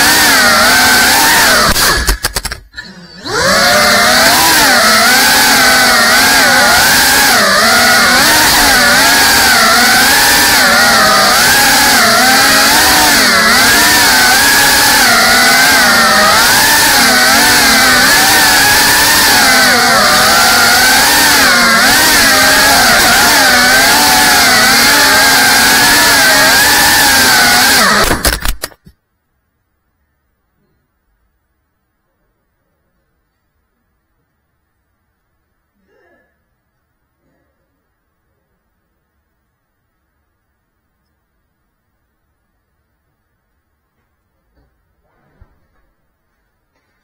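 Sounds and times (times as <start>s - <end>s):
drone motors whining: 0.0s - 28.8s
clicks: 1.5s - 2.9s, 27.9s - 29.0s.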